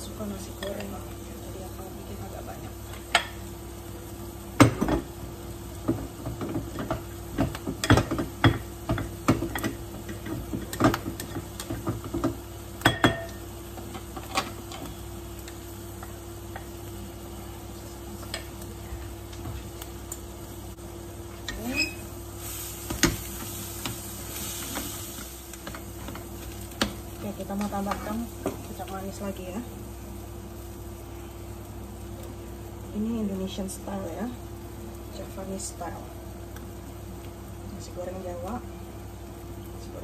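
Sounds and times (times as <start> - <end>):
steady low hum: 0.0 - 40.0
spoon knocking on a pot: 5.9 - 13.4.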